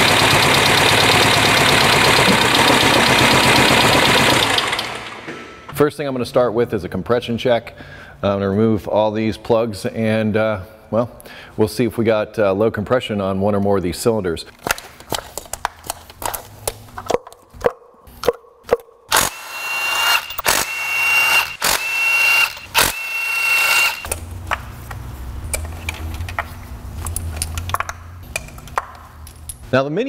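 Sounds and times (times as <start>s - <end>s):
impact wrench whining: 0.0s - 5.7s, 19.1s - 24.6s.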